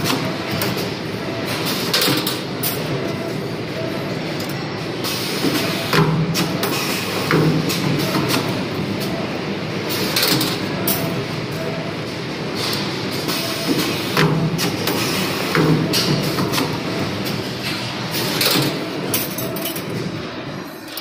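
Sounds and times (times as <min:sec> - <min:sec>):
wire bending machine whirring: 0:00.0 - 0:21.0.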